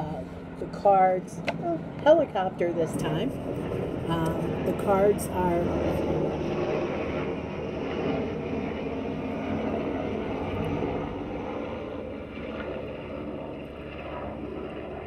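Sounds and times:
helicopter engine and rotor drone: 0.0s - 15.0s.

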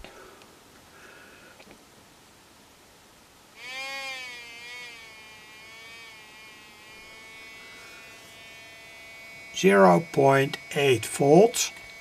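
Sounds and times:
buzzy beeper tone: 9.2s - 11.8s.

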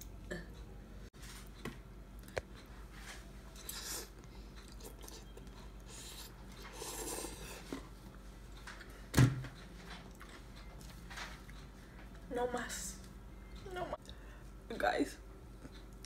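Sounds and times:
breaths: 14.1s - 14.6s.

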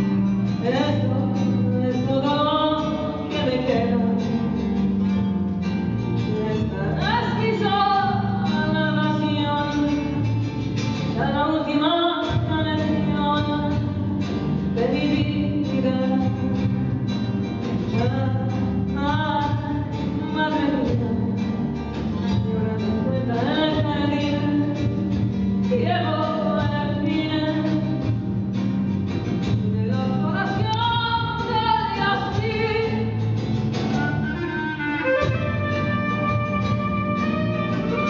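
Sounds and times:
band with upright double bass: 0.0s - 38.0s
woman singing into a microphone: 0.5s - 4.7s, 6.3s - 10.3s, 11.1s - 17.2s, 17.9s - 28.2s, 29.4s - 33.3s.

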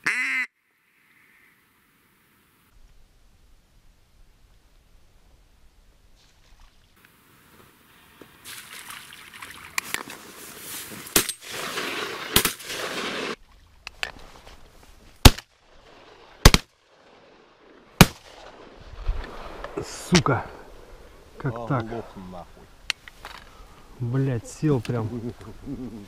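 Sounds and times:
shotgun shots: 11.2s - 13.4s, 16.4s - 16.7s, 18.0s - 18.7s.

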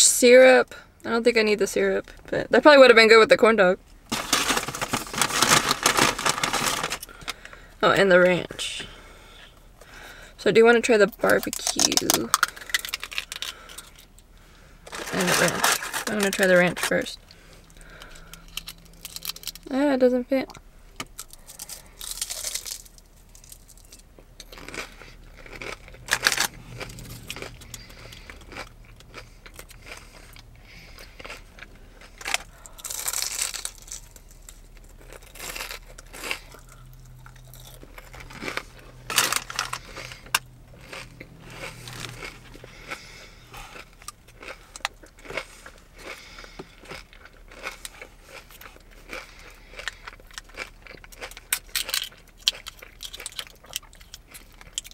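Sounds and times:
crunchy food chewing: 21.1s - 54.9s.

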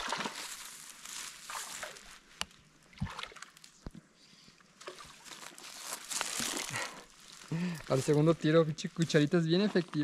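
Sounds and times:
water splashing and sloshing: 0.0s - 3.9s, 4.8s - 7.4s.

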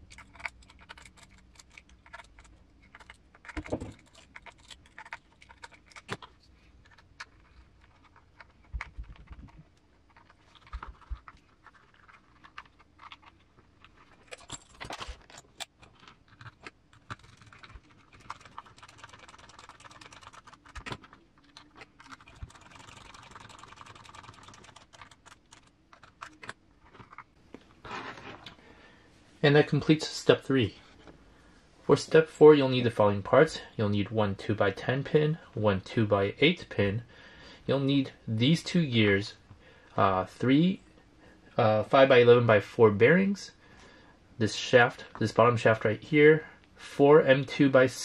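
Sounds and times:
small plastic parts clicking: 0.0s - 27.3s.

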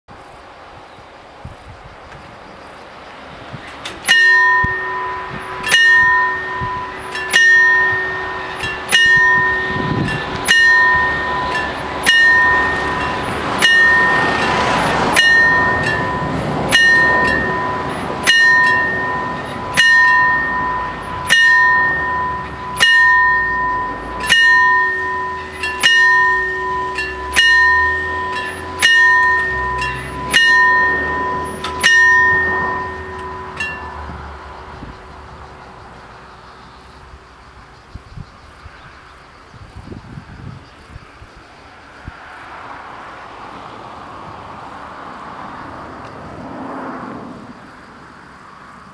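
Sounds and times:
level crossing warning bells: 3.6s - 39.9s.

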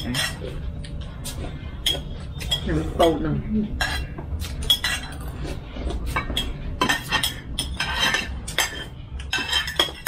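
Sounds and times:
spoons clinking on plates: 0.0s - 0.6s, 1.7s - 3.2s, 3.8s - 5.4s, 6.1s - 10.0s.

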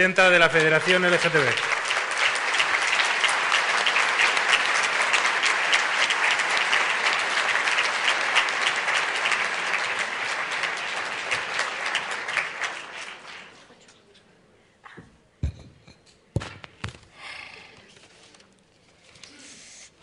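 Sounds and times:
audience applauding: 0.1s - 13.7s.

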